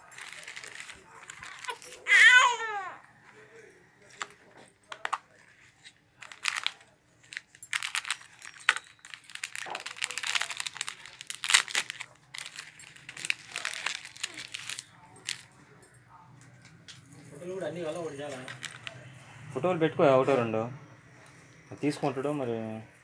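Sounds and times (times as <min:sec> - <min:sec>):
plastic packaging crinkling: 0:00.0 - 0:02.4, 0:04.1 - 0:15.6, 0:17.3 - 0:19.1.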